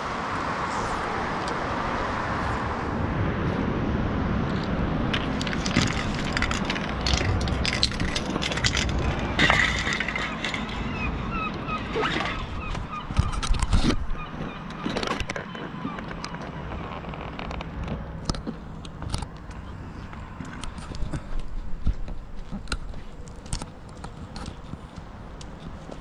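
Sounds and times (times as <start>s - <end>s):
city traffic rumble: 0.0s - 26.0s
footsteps and handling clicks: 4.5s - 10.8s, 12.7s - 26.0s.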